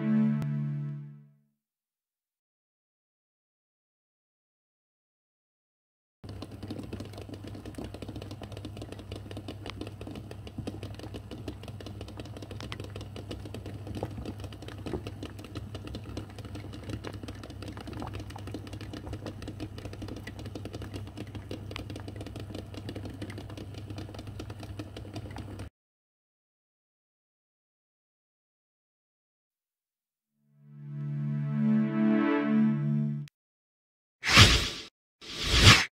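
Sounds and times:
water boiling with bubbling pops: 0:06.2 - 0:25.7.

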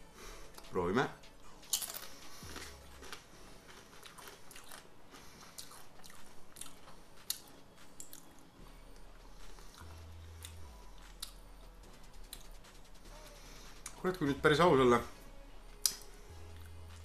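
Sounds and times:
tortilla chip crunching: 0:01.5 - 0:08.3.

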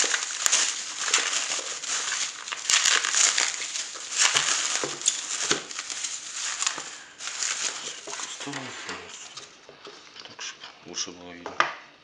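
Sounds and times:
bubble wrap crackles: 0:00.0 - 0:09.6
bubble wrap crinkling: 0:00.0 - 0:09.6.

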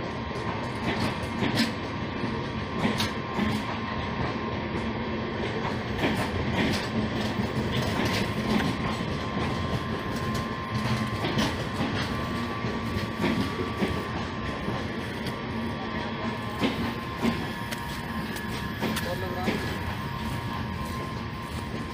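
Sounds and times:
train wheels rumbling on rail: 0:00.0 - 0:21.9
wheels clicking over rail joints: 0:05.6 - 0:15.4, 0:16.6 - 0:20.0.

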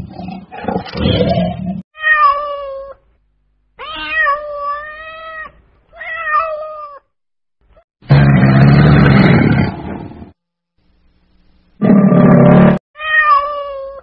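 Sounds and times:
cat meowing: 0:03.8 - 0:07.0, 0:13.0 - 0:14.0
lion roaring: 0:08.1 - 0:10.3, 0:11.8 - 0:12.8.

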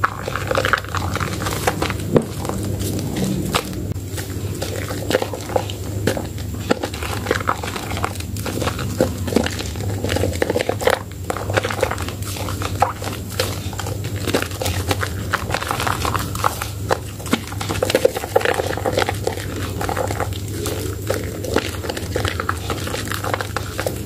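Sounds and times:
hands squelching soapy lather: 0:00.0 - 0:24.0.

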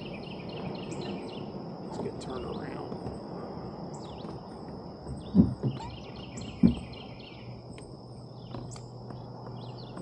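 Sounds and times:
birds chirping: 0:00.0 - 0:10.0
insects droning: 0:00.0 - 0:10.0
dull low thumps: 0:02.9 - 0:07.0.

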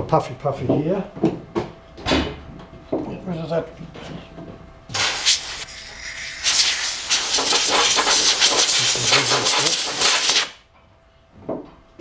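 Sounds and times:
air blow gun hissing: 0:04.9 - 0:10.6.

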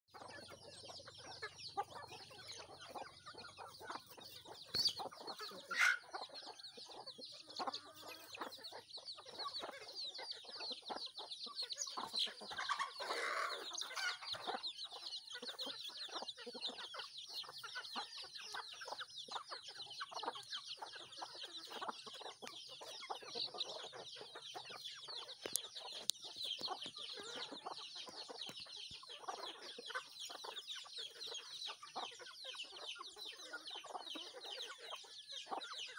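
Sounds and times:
chickens clucking: 0:00.1 - 0:35.9
chicks peeping: 0:00.1 - 0:35.9.

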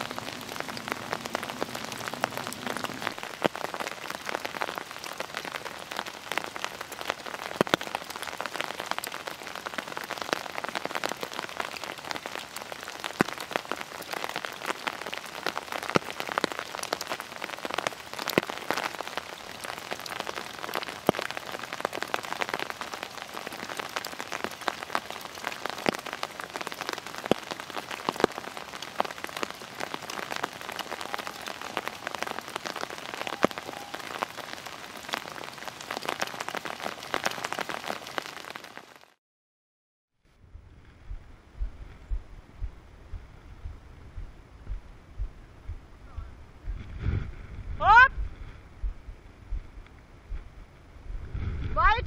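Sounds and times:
rain pattering on dry leaves: 0:00.0 - 0:39.2.

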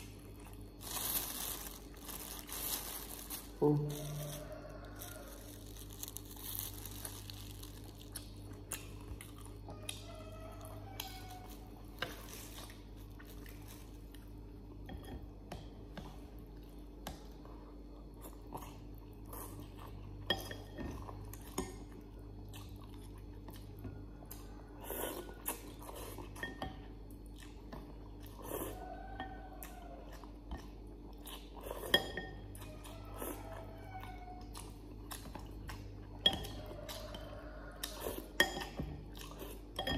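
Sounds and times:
steady low hum: 0:00.0 - 0:33.4
person chewing and slurping: 0:17.3 - 0:28.9, 0:29.6 - 0:39.9.

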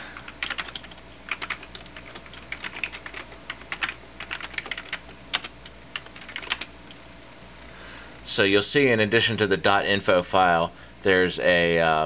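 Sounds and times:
computer keyboard keystrokes: 0:00.2 - 0:07.0.

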